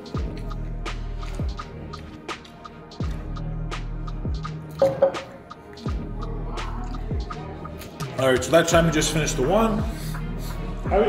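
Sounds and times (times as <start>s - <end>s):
sharp percussive hits: 4.7s - 5.4s
deep kick drum: 7.1s - 7.5s.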